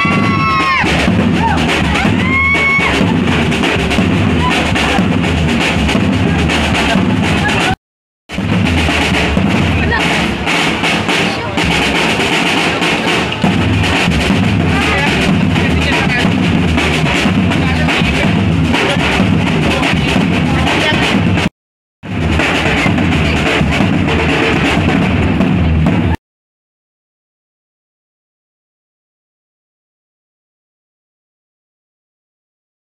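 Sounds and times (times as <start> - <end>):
crowd voices: 0.0 - 7.8, 8.7 - 21.5, 22.1 - 26.2
street drum band pounding: 0.0 - 26.2.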